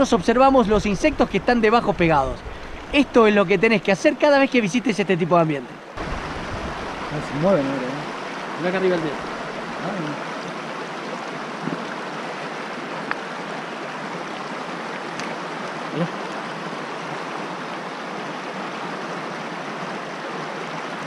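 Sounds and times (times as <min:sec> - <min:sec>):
creek water rushing over rocks: 0:00.0 - 0:21.0.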